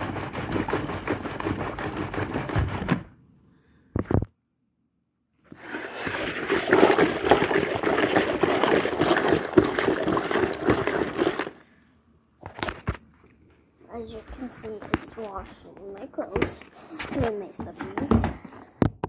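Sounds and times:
washing machine churning: 0.0 - 3.1, 5.5 - 11.6.

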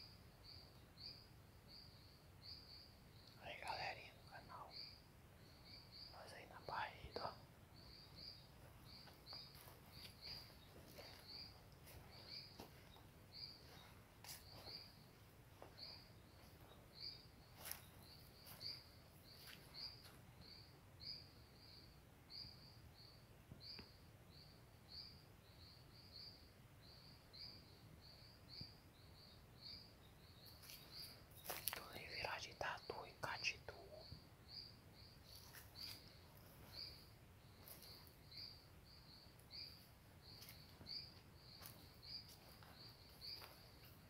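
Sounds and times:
faint high-pitched chirping: 0.0 - 44.0.

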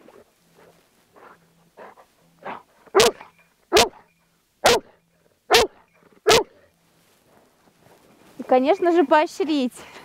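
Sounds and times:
dog barking sharply: 2.5 - 4.0, 4.6 - 4.9, 5.5 - 6.6.

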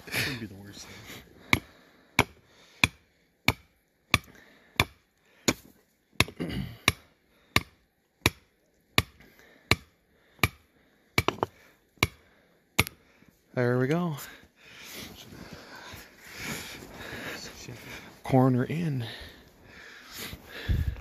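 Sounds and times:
hammer striking a stake: 1.5 - 12.2, 12.8 - 13.0.

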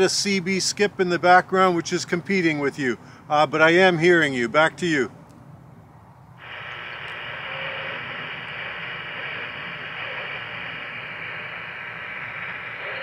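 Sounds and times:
walkie-talkie static: 6.4 - 13.0.

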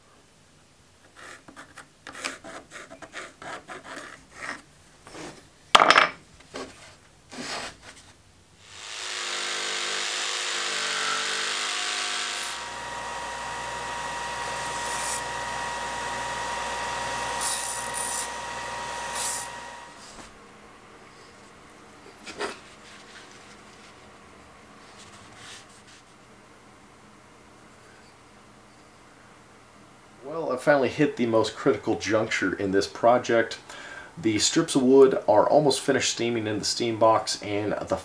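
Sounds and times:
pencil scratching: 1.2 - 4.6
jigsaw cutting wood: 8.6 - 20.1
belt sander whining: 8.7 - 20.2.

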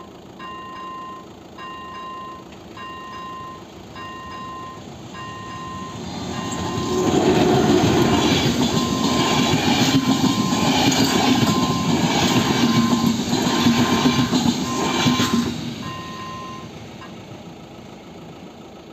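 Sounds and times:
level crossing bell dinging: 0.0 - 7.0
train wheels clacking on rails: 0.4 - 17.2.

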